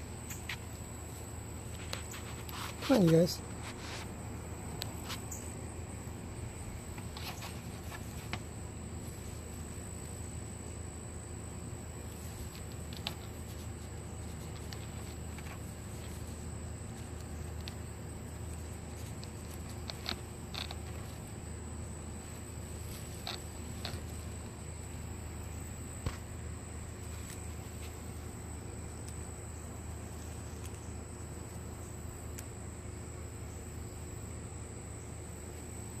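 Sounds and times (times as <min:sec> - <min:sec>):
low background hum: 0:00.0 - 0:36.0
clicks and rustles of mesh cage: 0:06.8 - 0:09.7, 0:12.0 - 0:21.5, 0:22.1 - 0:25.2.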